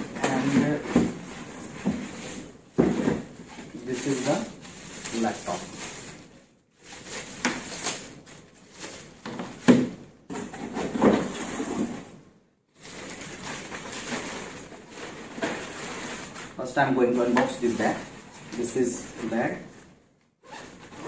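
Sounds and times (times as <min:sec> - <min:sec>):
plastic packaging crinkling: 0:03.7 - 0:09.2, 0:12.8 - 0:19.7.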